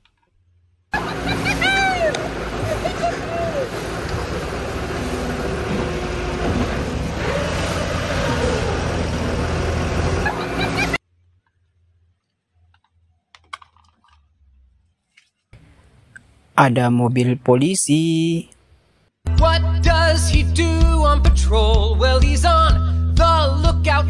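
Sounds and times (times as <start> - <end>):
excavator engine running: 0.9 - 11.0
water splashing around tracks: 1.0 - 11.0
plastic toys clicking: 12.2 - 14.4.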